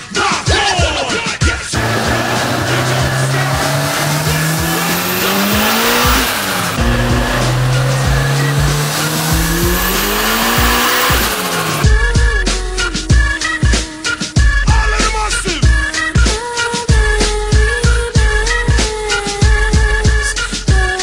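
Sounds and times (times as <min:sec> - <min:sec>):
hip-hop music: 0:00.0 - 0:21.0
car engine revving: 0:01.8 - 0:12.0.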